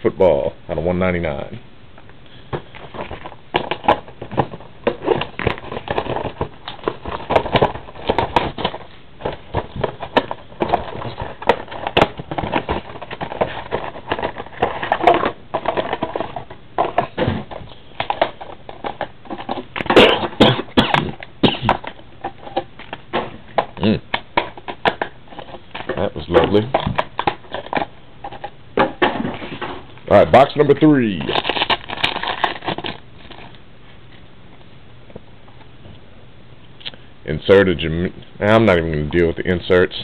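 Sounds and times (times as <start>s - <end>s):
plastic packaging crinkling: 2.5s - 28.5s, 29.4s - 33.6s.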